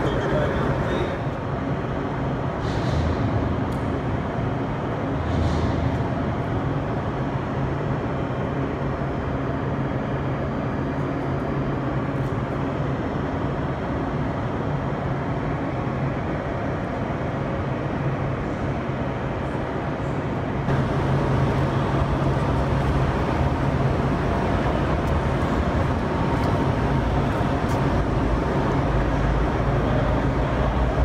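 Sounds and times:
car engine idling: 0:20.7 - 0:31.0.

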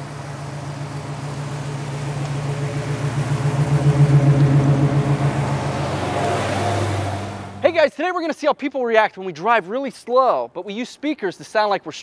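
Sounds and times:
car engines idling: 0:00.0 - 0:07.8.

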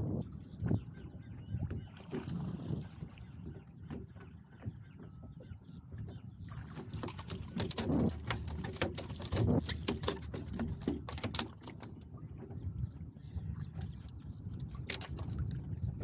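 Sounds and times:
wind buffeting microphone: 0:00.0 - 0:16.0
sharp clicks and rattles: 0:06.6 - 0:12.7, 0:13.8 - 0:15.4.

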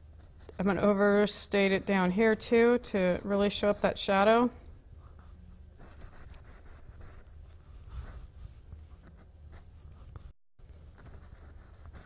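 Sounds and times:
low steady hum: 0:00.0 - 0:12.0
paintbrush scratching on canvas: 0:05.0 - 0:10.3, 0:11.0 - 0:12.0.

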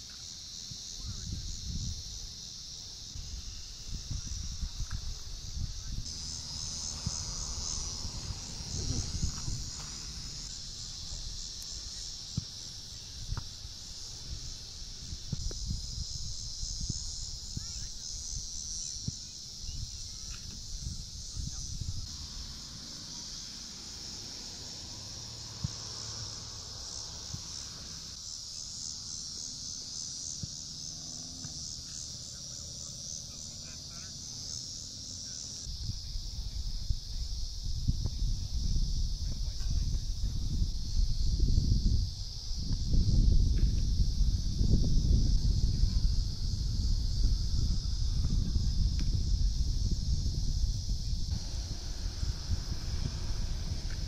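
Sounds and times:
high-pitched insect chorus: 0:00.0 - 0:54.0
low rumble: 0:50.2 - 0:54.0.

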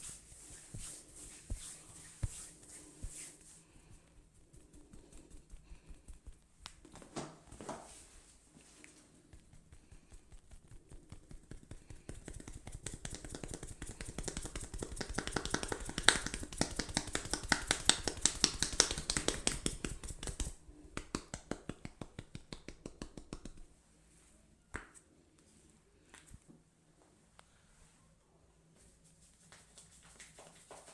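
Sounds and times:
hands tapping and slapping: 0:09.3 - 0:23.7.

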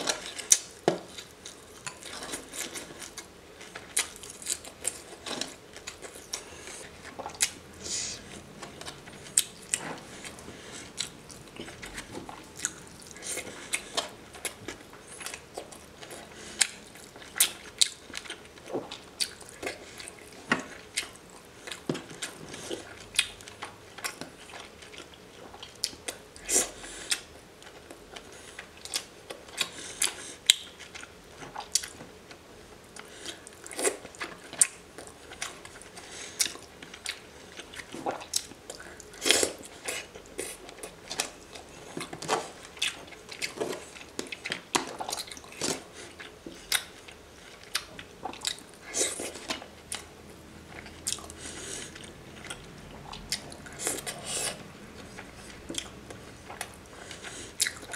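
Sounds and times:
wet chewing and mouth smacks: 0:33.0 - 0:57.9.

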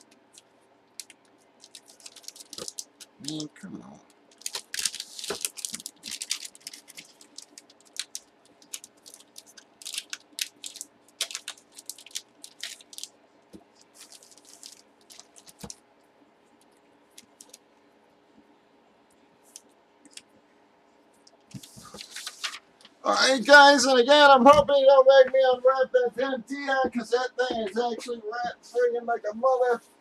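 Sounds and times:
padded envelope crinkling: 0:00.0 - 0:03.5, 0:04.2 - 0:15.8, 0:17.2 - 0:17.6, 0:21.5 - 0:22.7.

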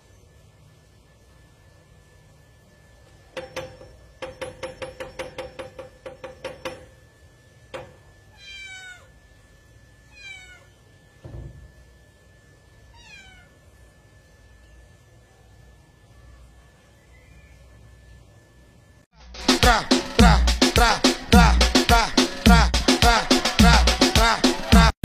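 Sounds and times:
cat meowing: 0:08.3 - 0:09.2, 0:10.1 - 0:10.8, 0:12.9 - 0:13.6
dull thump: 0:11.2 - 0:11.7.

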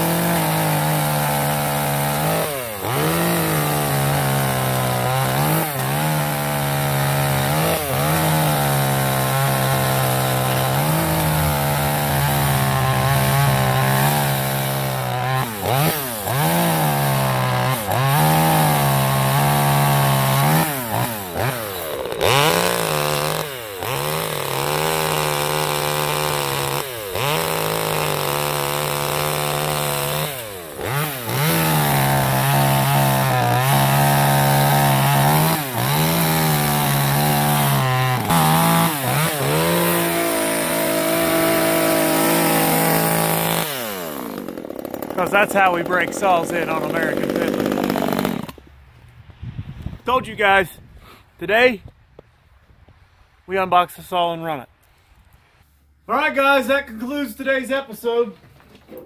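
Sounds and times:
chainsaw cutting brush: 0:00.0 - 0:48.7.

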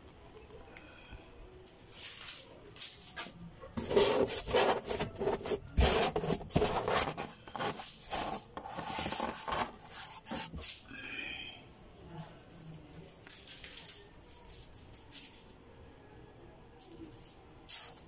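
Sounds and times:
scraping and rubbing on wood: 0:03.1 - 0:10.8.

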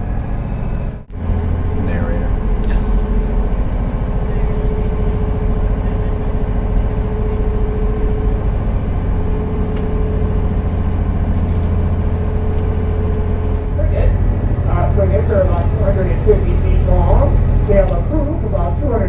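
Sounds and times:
boat engine drone: 0:00.0 - 0:19.0
steady hum: 0:00.0 - 0:19.0.

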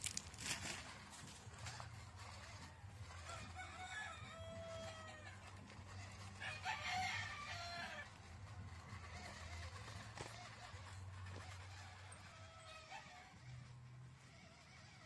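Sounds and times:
chicken calls: 0:01.7 - 0:13.8
rooster crowing: 0:03.0 - 0:05.6, 0:06.2 - 0:08.2.

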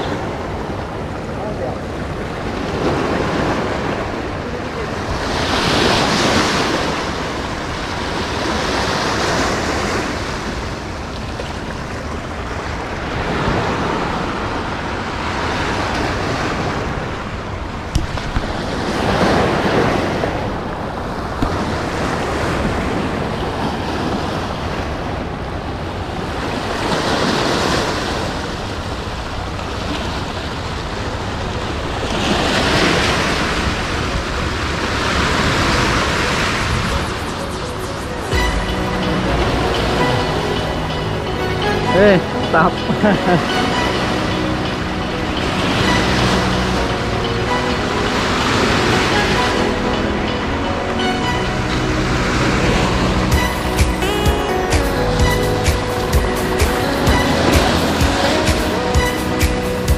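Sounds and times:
wind buffeting microphone: 0:00.0 - 0:41.4
waves washing over rocks: 0:00.0 - 0:59.9.

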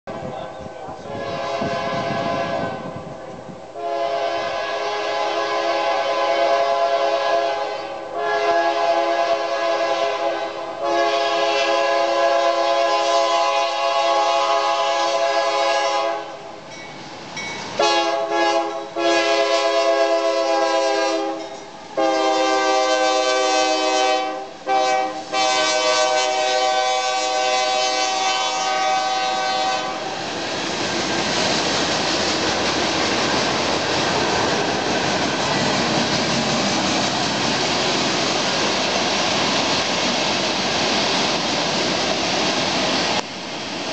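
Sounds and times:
train passing: 0:00.1 - 0:43.9
locomotive air horn blasts: 0:01.0 - 0:03.1, 0:03.8 - 0:16.5, 0:17.8 - 0:30.2.

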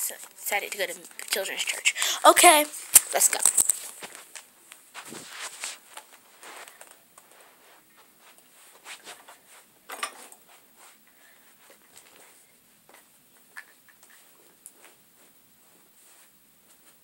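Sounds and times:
faint rustling: 0:00.2 - 0:13.1.

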